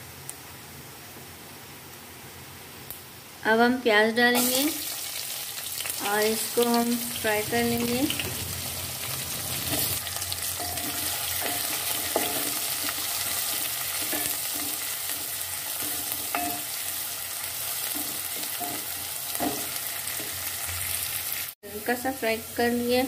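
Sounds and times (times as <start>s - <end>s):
onions sizzling in hot oil: 4.0s - 23.0s
wooden spoon scraping a pot: 9.1s - 16.8s.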